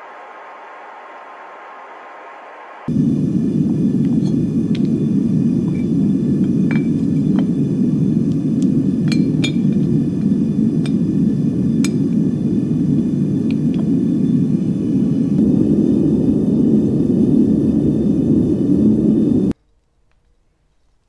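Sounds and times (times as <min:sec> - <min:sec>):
furnace burner roaring: 0:00.0 - 0:19.6.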